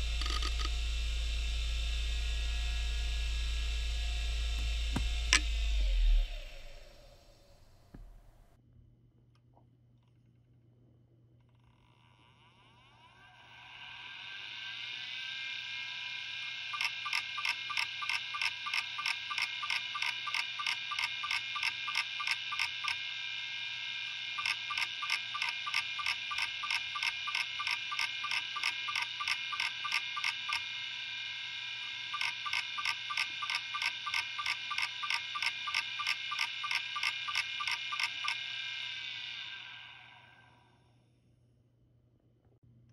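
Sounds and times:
hard drive head clicking: 0:00.0 - 0:00.8, 0:24.4 - 0:30.6, 0:32.2 - 0:38.4
hard drive high whine: 0:00.0 - 0:08.6, 0:12.6 - 0:41.0.

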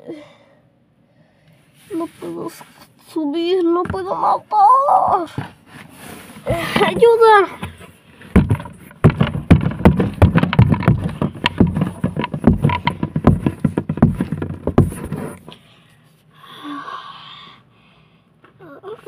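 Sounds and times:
phone knocking and scraping: 0:05.3 - 0:15.5
breathy noise: 0:15.4 - 0:19.0.

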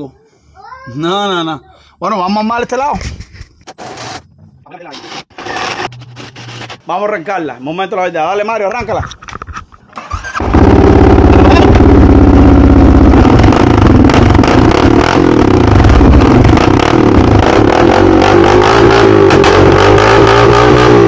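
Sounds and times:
engine cranking: 0:09.9 - 0:17.7
atv engine running loud: 0:10.4 - 0:21.0.

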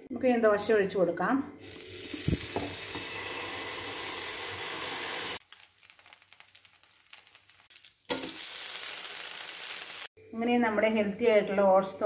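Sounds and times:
batter sizzling on hot griddle: 0:01.6 - 0:10.2.

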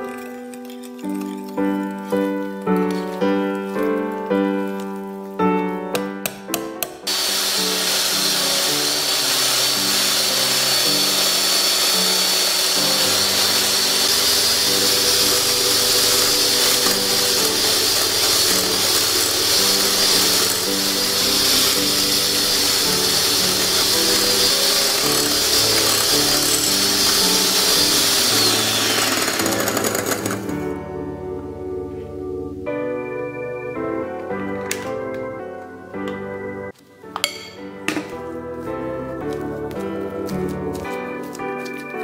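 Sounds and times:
background music: 0:00.0 - 0:42.0
electric hand mixer whining: 0:07.0 - 0:30.8.

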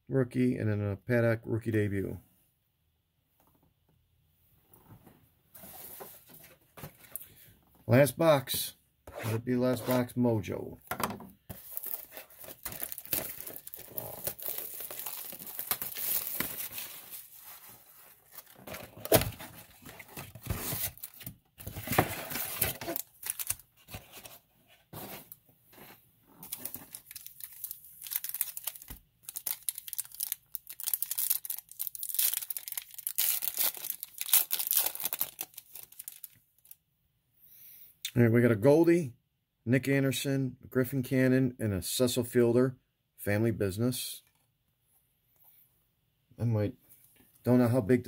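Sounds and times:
foil wrappers crinkling and tearing: 0:11.5 - 0:18.6, 0:22.1 - 0:23.7, 0:26.4 - 0:36.8.

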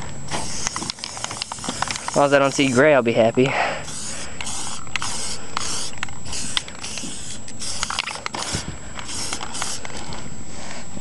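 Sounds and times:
spray can hissing bursts: 0:00.3 - 0:02.8, 0:03.8 - 0:09.8.

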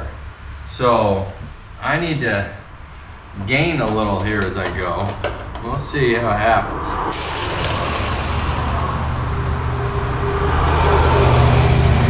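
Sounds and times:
jigsaw cutting steel: 0:07.2 - 0:08.8.

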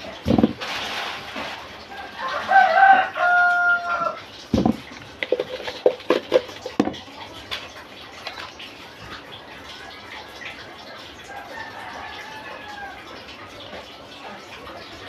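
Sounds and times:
rooster crowing: 0:01.9 - 0:04.2, 0:11.3 - 0:13.1
knock: 0:04.5 - 0:07.0
kitchenware clicks and taps: 0:04.5 - 0:07.7.

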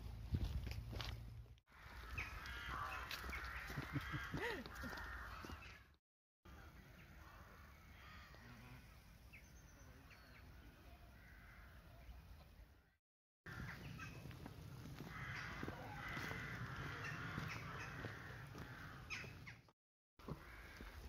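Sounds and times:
crows cawing: 0:01.7 - 0:06.0, 0:06.6 - 0:08.6, 0:11.1 - 0:12.0, 0:13.5 - 0:21.0.

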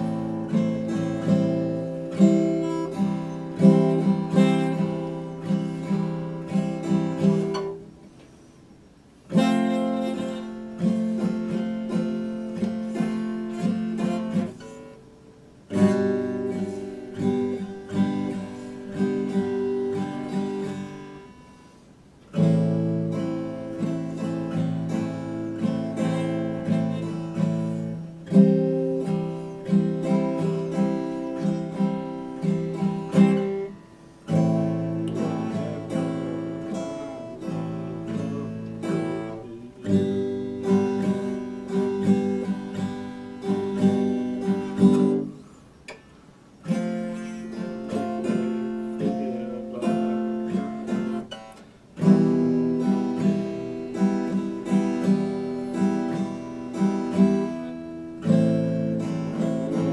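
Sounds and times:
acoustic guitar strumming chords: 0:00.0 - 0:59.9.

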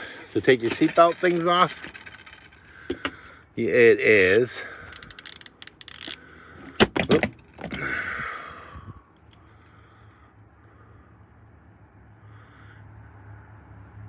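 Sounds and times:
metal socket clinking: 0:00.6 - 0:03.1, 0:04.2 - 0:06.2
ratchet clicks: 0:00.6 - 0:03.1, 0:04.2 - 0:06.3.

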